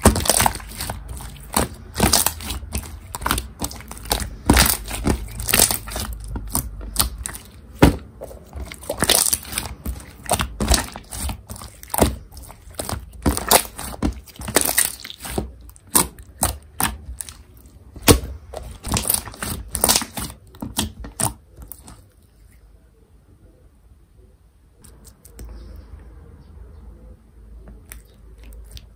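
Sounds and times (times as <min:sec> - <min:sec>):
slime squished by hand: 0:00.0 - 0:22.1.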